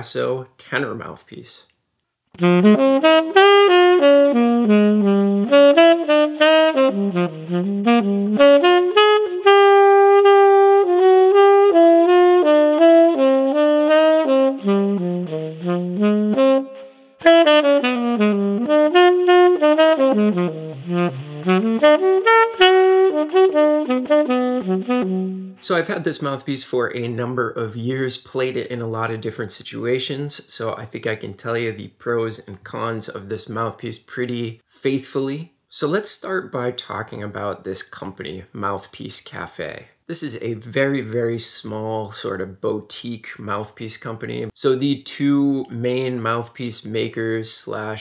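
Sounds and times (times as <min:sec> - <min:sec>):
tenor saxophone jazz line: 0:02.3 - 0:48.0.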